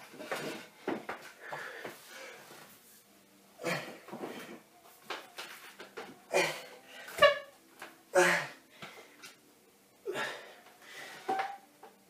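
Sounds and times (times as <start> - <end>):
man breathing effortfully: 0.2 - 2.6, 8.2 - 9.3, 10.0 - 11.3.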